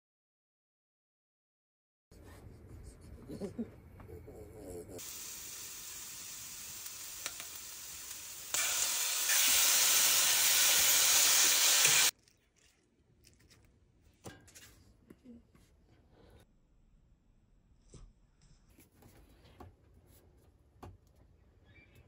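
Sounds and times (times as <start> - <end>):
food sizzling in a skillet: 5.0 - 12.1.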